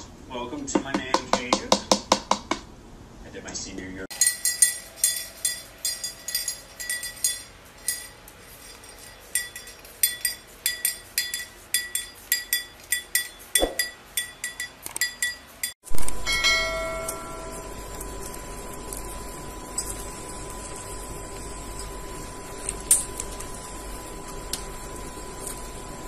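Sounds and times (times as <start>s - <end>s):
small hand bell ringing: 4.1s - 17.8s.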